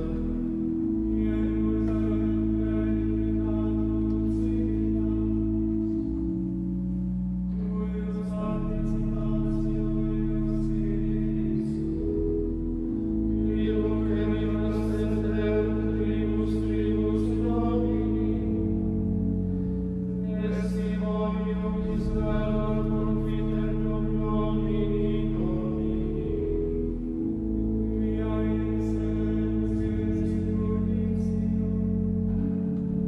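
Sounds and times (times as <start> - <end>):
pipe organ sustained chords: 0.0 - 33.0.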